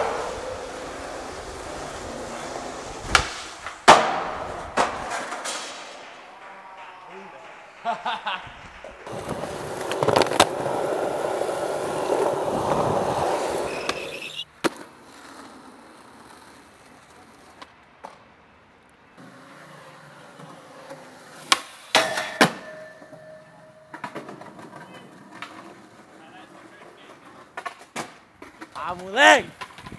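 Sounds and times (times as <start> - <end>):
skateboard clacks: 0.0 - 18.3, 19.2 - 29.9
skateboard wheels rolling on concrete: 0.0 - 29.9.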